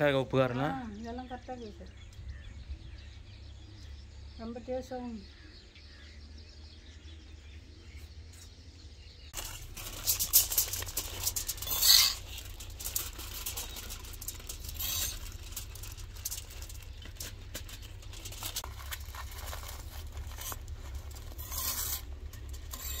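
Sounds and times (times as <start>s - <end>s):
metal tongs clicking and scraping: 9.4s - 18.5s, 21.3s - 23.0s
aluminium foil crinkling: 9.4s - 23.0s.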